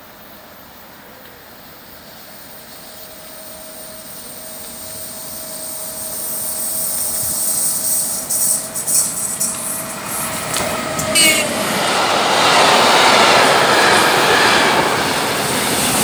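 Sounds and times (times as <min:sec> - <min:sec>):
faint steady whine: 0:00.0 - 0:11.4
approaching freight train rush: 0:00.0 - 0:16.0.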